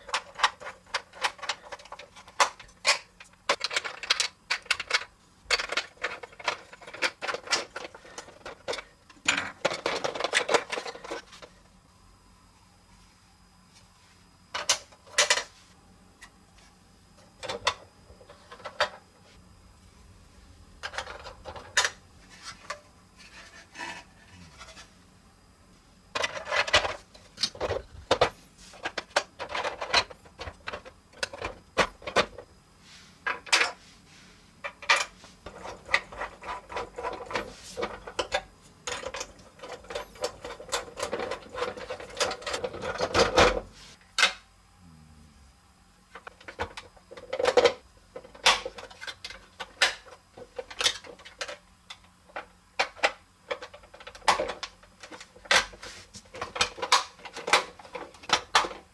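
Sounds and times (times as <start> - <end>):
plastic toy parts clicking: 0.1 - 11.2.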